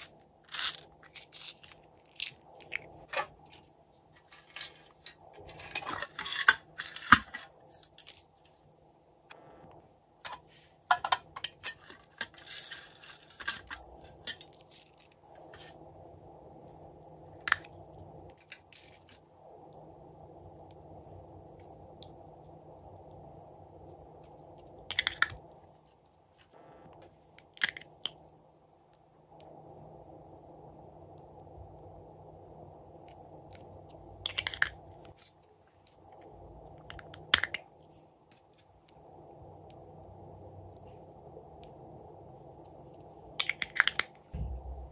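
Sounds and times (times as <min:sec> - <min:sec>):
plastic rattle: 0:00.0 - 0:03.2
low steady hum: 0:00.0 - 0:44.9.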